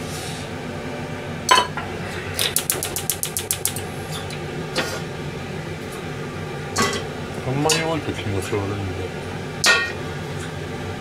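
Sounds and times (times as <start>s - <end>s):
sharp clicks: 2.5s - 3.8s.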